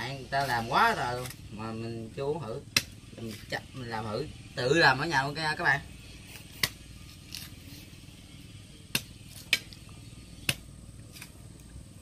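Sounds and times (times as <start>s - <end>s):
knife chopping coconut: 2.6s - 3.6s, 6.4s - 7.5s, 8.9s - 9.8s, 10.4s - 11.4s.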